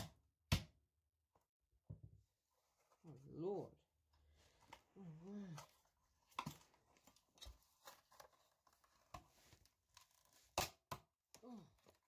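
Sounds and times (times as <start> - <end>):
clicks and scrapes of handling: 5.6 - 10.9.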